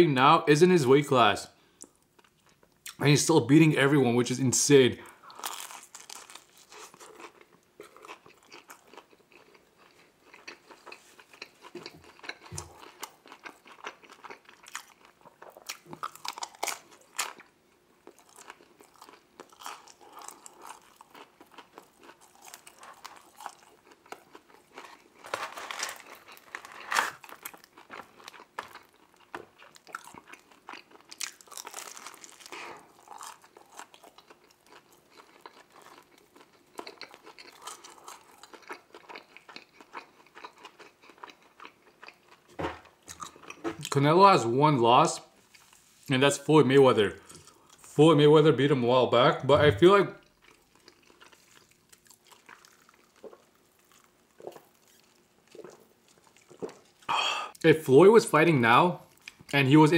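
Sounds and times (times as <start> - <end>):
biting and chewing pizza: 5.3 - 44.0, 50.2 - 57.1.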